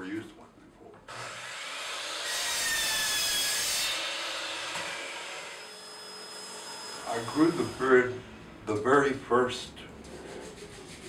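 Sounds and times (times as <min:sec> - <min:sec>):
miter saw cutting wood: 0:01.1 - 0:08.3.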